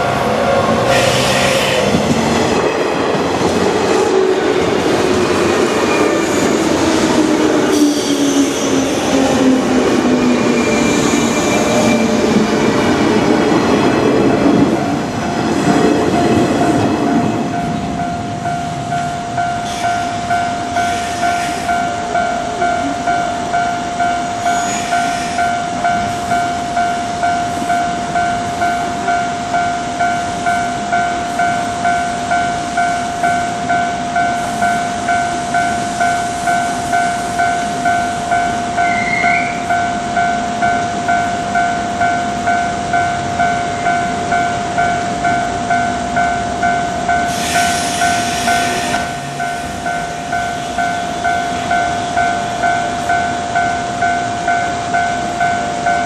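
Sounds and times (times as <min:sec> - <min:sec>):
train whine falling in pitch: 0:00.0 - 0:56.0
level crossing warning bell: 0:01.4 - 0:56.0.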